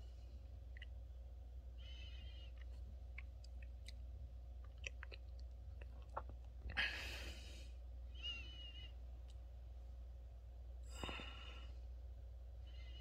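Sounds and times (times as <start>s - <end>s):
thin whistling breath: 8.1s - 8.9s, 12.6s - 13.0s.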